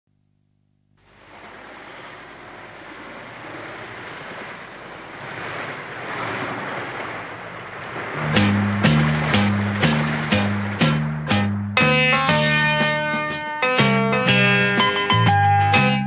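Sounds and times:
rushing surf-like noise: 1.0s - 13.4s
bass-heavy background music: 8.2s - 16.0s.

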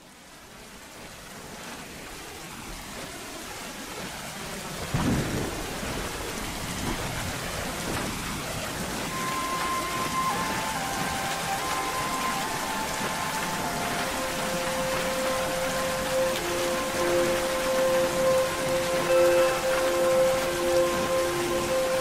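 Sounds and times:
steady rain: 0.0s - 22.0s
thunder crack: 4.9s - 7.2s
held musical note: 9.1s - 22.0s.

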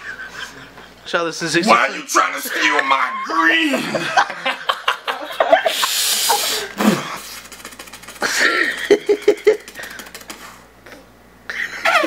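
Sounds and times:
young men laughing breathily: 0.0s - 1.0s, 2.4s - 7.5s, 8.1s - 10.1s, 11.5s - 12.0s.

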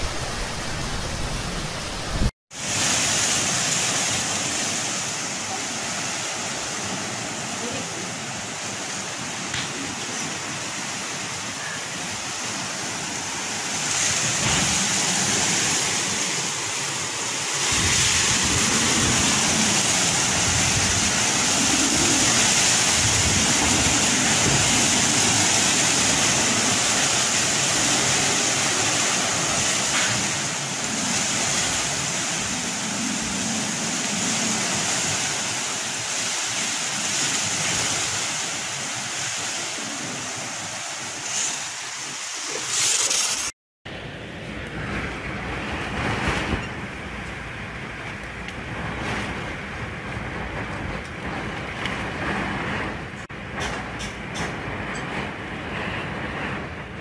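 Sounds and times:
low rumbling buffets: 0.0s - 2.3s
storm wind gusting: 0.0s - 7.6s, 12.1s - 57.0s
rain: 0.0s - 57.0s.

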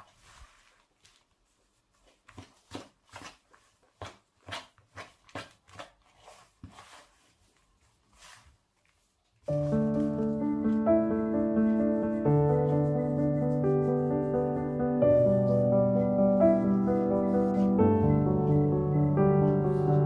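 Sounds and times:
dough squishing and crumbling: 0.0s - 9.8s.

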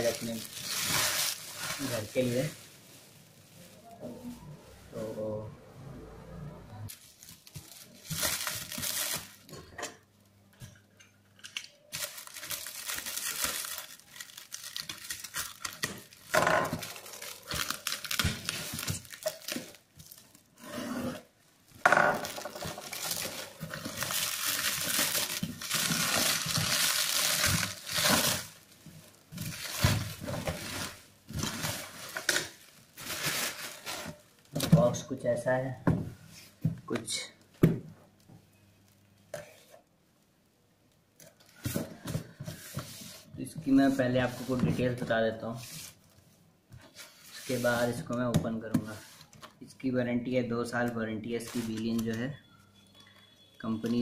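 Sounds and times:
plastic stretch wrap rustling: 0.0s - 5.2s, 6.9s - 9.5s, 11.9s - 20.6s, 22.2s - 34.6s.

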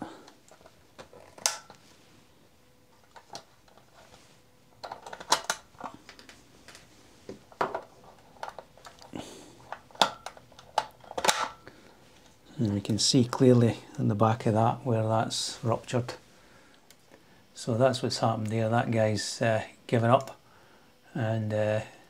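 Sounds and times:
wires clicking and rustling: 0.0s - 1.8s, 2.9s - 13.0s.

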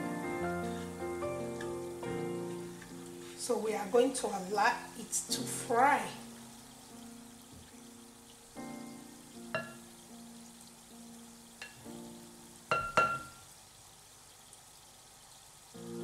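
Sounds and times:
soft background music: 0.0s - 13.4s, 15.8s - 16.0s
deep-frying sizzle and bubbling: 0.0s - 16.0s.

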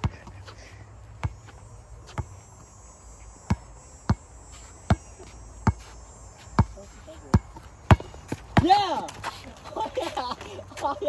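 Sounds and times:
basketball dribbling on hard court: 6.6s - 9.2s.

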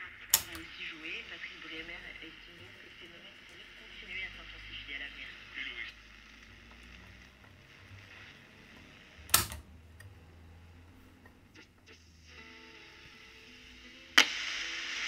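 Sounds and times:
radio hum and hiss: 0.0s - 15.0s
sharp click of radio controls: 0.3s - 0.7s, 9.3s - 10.1s.

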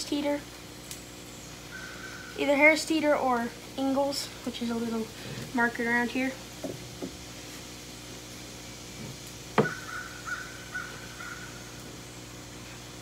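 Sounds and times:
sharp tap on cutting board: 9.6s - 9.8s.

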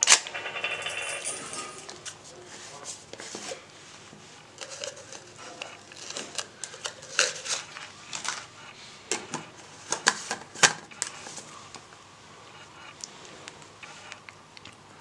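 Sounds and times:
crumpled paper rustling: 4.6s - 8.5s.

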